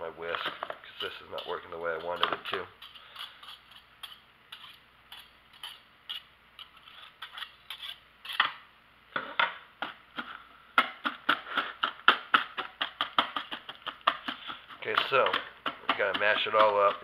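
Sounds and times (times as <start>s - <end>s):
whisk scraping a mixing bowl: 0.3s - 8.4s, 12.7s - 17.0s.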